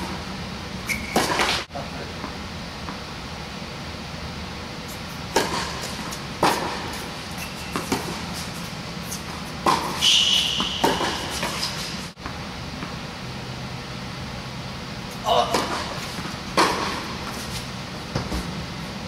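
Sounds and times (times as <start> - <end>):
high squeak: 0.8 - 1.4, 7.3 - 7.9, 10.0 - 11.8
tennis ball bouncing: 0.9 - 1.7, 5.3 - 8.5, 9.2 - 13.0, 15.3 - 18.5
tennis racket hitting ball: 1.1 - 1.7, 5.3 - 7.1, 7.7 - 8.6, 9.3 - 12.1, 15.3 - 18.5.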